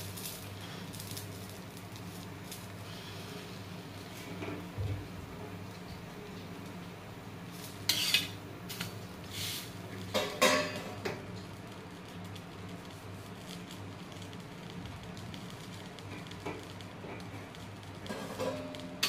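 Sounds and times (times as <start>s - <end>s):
steady low hum: 0.0s - 19.0s
metal spatula scraping a pan: 7.8s - 8.4s.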